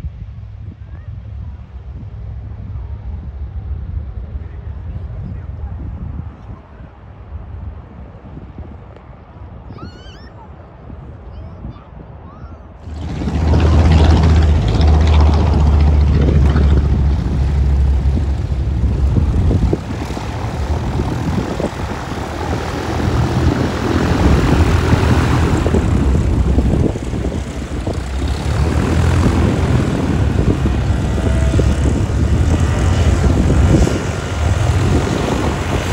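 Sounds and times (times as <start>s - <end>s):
propeller aircraft engine: 12.8s - 35.9s.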